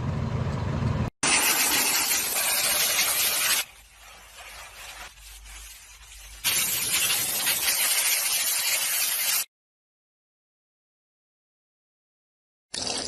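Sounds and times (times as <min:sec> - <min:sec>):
steam cleaner hissing: 0:01.2 - 0:09.5
cloth rubbing: 0:02.4 - 0:07.0.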